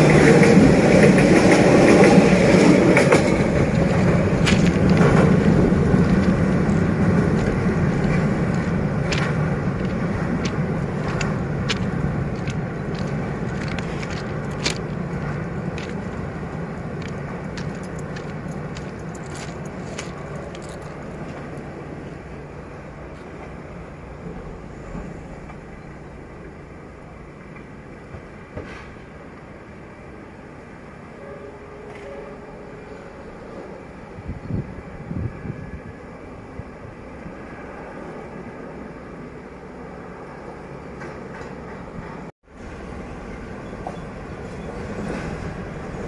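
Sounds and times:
sharp clacks of train wheels: 0.0 - 22.0, 27.5 - 29.0, 40.9 - 42.3, 43.6 - 46.0
train rumbling on bridge: 0.0 - 46.0.

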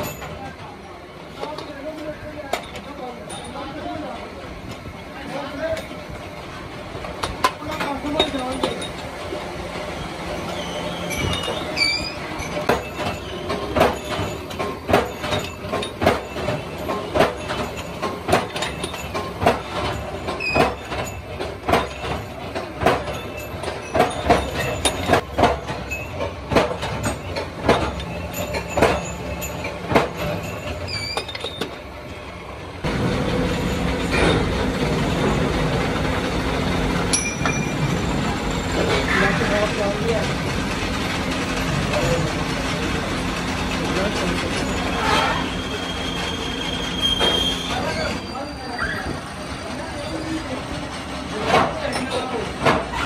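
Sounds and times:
lathes running: 1.2 - 53.0
steel bars clanking on metal: 7.2 - 9.2, 10.4 - 31.9, 37.1 - 40.4, 41.4 - 49.0.

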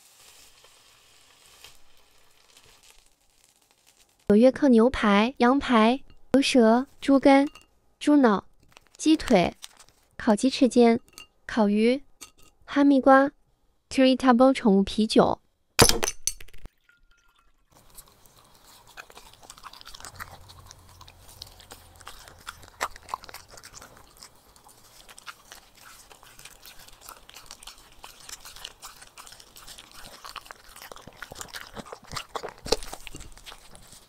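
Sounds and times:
dog chewing meat: 17.8 - 34.0.

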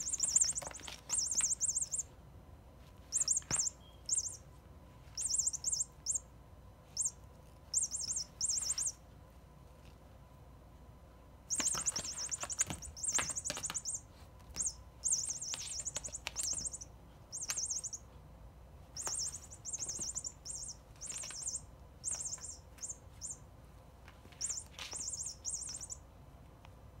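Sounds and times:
electronic toy chirping: 0.0 - 2.1, 3.1 - 4.5, 5.2 - 6.3, 6.9 - 9.0, 11.5 - 18.1, 19.0 - 23.4, 24.4 - 26.0.

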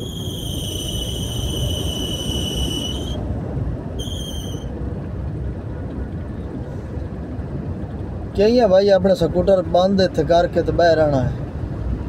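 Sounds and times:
high whistle-like tone: 0.0 - 3.2, 4.0 - 4.7
engine rumble: 0.0 - 12.0.

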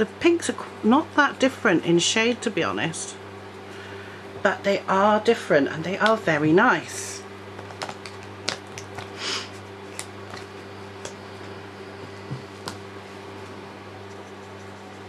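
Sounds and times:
steady low hum: 0.0 - 15.0
pens clicking and tapping: 7.6 - 9.1.

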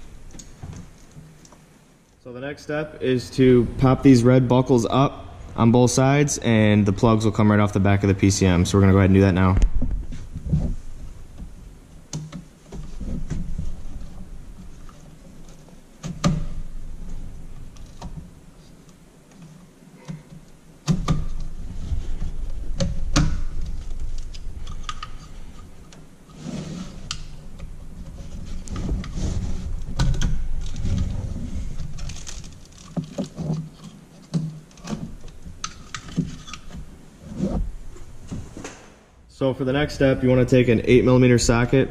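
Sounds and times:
low rumbling: 2.2 - 12.0
rustling: 8.4 - 39.2.

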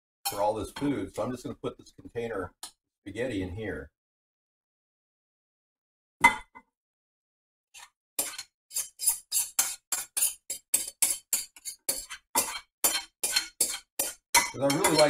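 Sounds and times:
spoon scraping a bowl: 7.8 - 15.0.

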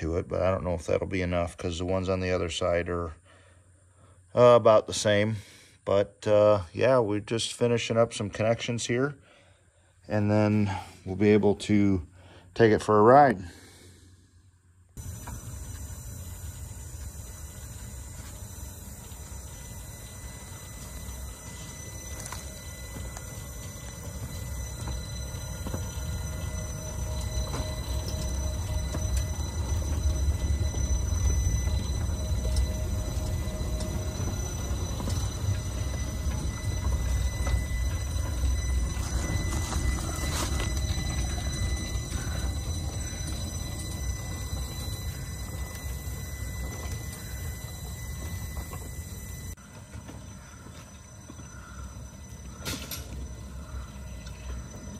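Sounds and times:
electric motor whine: 15.0 - 49.6
steel wheels rumbling on track: 15.0 - 54.9.

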